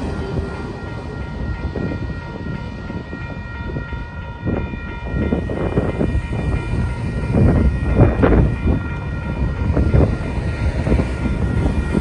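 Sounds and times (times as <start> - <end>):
railroad crossing bell ringing: 0.0 - 12.0.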